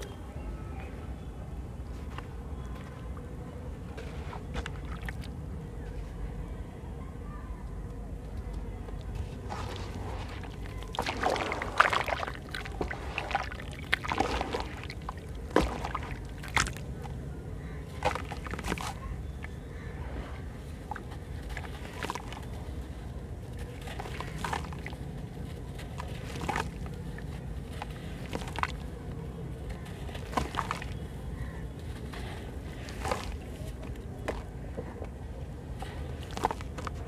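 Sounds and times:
water sloshing in a basin: 4.6s - 5.4s, 9.1s - 17.2s, 17.8s - 28.9s, 29.8s - 34.4s, 36.2s - 37.0s
gritty crunches of crushed cement: 9.0s - 37.0s
crumbs splashing into water: 9.4s - 17.1s, 17.8s - 19.6s, 20.8s - 22.5s, 23.8s - 25.0s, 25.8s - 28.9s, 30.0s - 31.6s, 32.7s - 33.5s, 36.2s - 37.0s.

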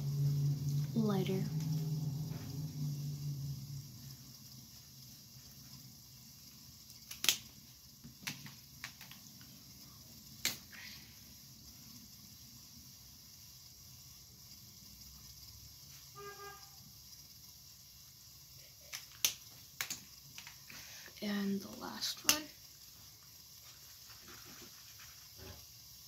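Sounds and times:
marker caps clicking: 7.0s - 7.4s, 8.0s - 9.2s, 18.9s - 20.6s.

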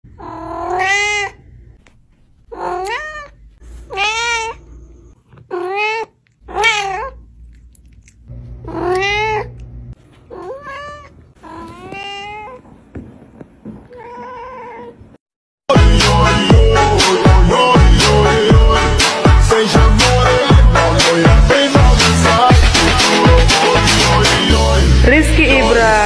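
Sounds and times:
cat meowing: 0.2s - 1.4s, 2.5s - 4.6s, 5.4s - 7.2s, 8.7s - 9.6s, 10.3s - 12.6s, 13.9s - 15.0s.

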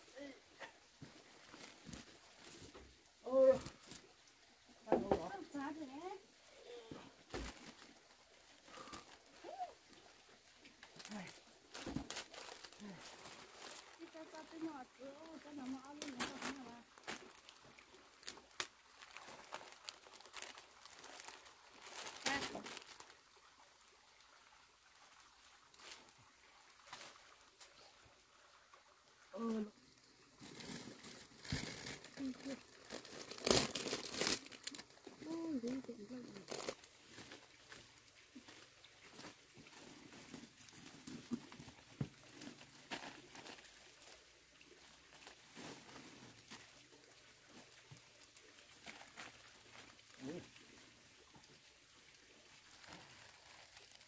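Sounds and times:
plastic bags crinkling: 10.9s - 23.1s, 30.0s - 44.2s, 44.8s - 46.7s, 47.5s - 50.4s, 52.7s - 54.0s.

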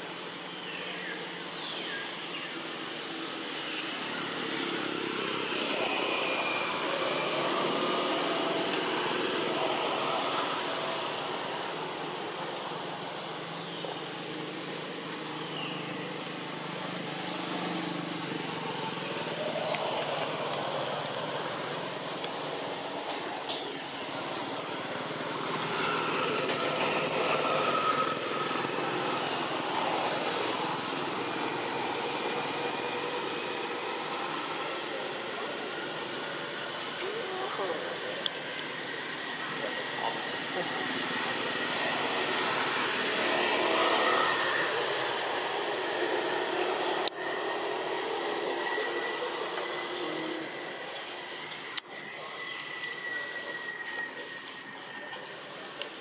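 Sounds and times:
outdoor background noise: 0.0s - 56.0s
vehicle engines passing: 2.0s - 56.0s.

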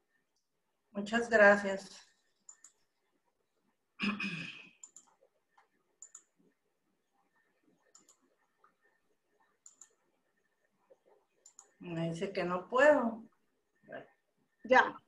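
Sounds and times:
computer mouse double-clicks: 2.4s - 2.8s, 4.8s - 6.3s, 7.9s - 8.3s, 9.6s - 10.0s, 11.4s - 11.8s.

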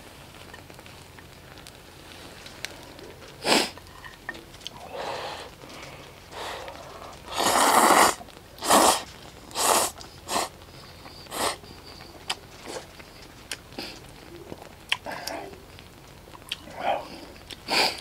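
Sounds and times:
person slurping noodles: 7.3s - 10.5s.

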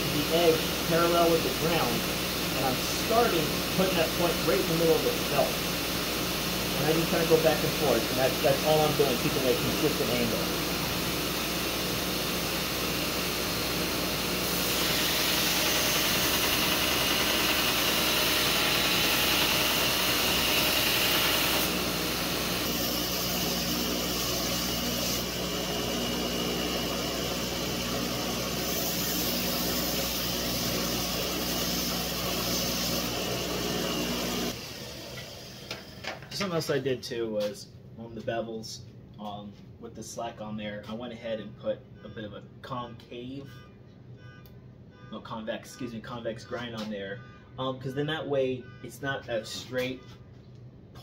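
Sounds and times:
belt grinder motor hum: 0.0s - 35.9s.

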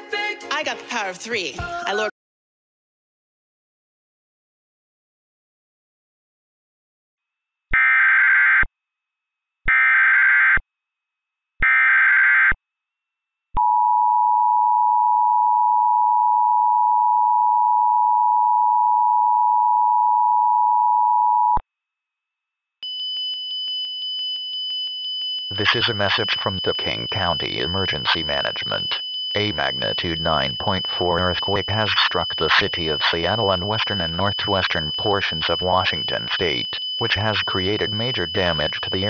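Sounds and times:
rapidly pulsing beep tone: 25.5s - 39.0s
two-tone attention signal: 25.5s - 39.0s.

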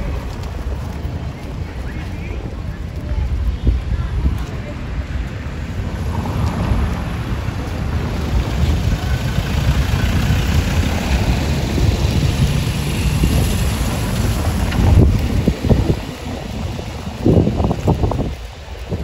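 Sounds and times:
vehicle engine passing: 5.5s - 18.3s.

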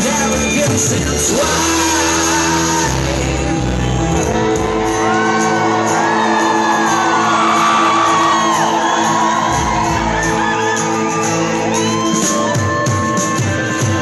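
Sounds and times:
rock band sustained chord: 1.2s - 10.6s
audience shouting and whooping: 1.4s - 14.0s.

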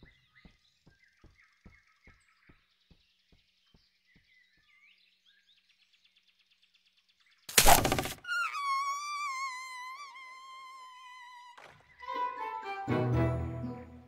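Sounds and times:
faint bird chirps: 0.0s - 12.2s
snare trap springing: 7.5s - 8.2s.

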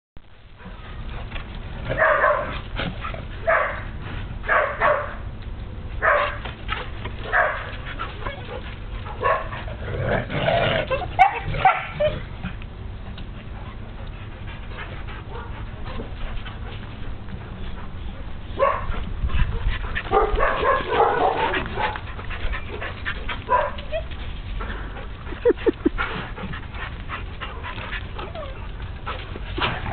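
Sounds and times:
dog barking: 2.0s - 2.5s, 3.4s - 3.9s, 4.5s - 5.2s, 6.0s - 6.4s, 7.3s - 7.7s, 9.2s - 9.6s, 11.2s - 12.1s, 18.6s - 18.9s, 20.1s - 22.0s, 23.5s - 23.9s.

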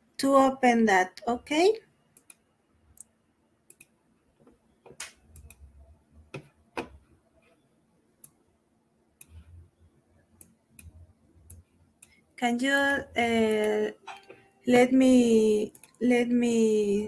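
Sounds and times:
computer mouse and keyboard clicks: 3.7s - 3.9s, 9.2s - 9.4s, 15.7s - 16.0s.

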